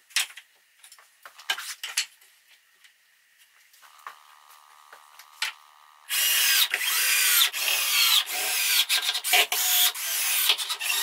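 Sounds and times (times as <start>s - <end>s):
faint steady hum: 0.0s - 8.4s.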